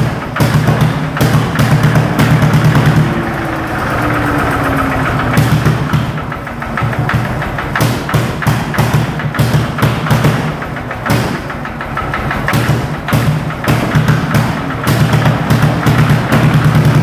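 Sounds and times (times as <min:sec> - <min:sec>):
tractor engine thumping: 0:00.0 - 0:17.0.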